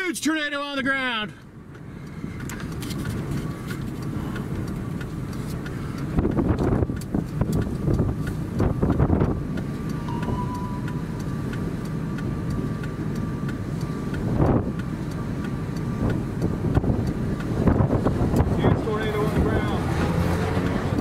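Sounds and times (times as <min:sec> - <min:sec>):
wind buffeting microphone: 0:06.0 - 0:11.0, 0:14.1 - 0:15.0, 0:15.9 - 0:21.0
faint steady tone: 0:09.8 - 0:11.9.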